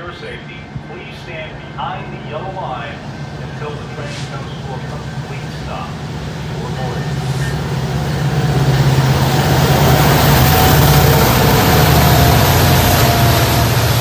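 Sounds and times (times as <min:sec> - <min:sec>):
diesel locomotives passing: 0:00.0 - 0:14.0.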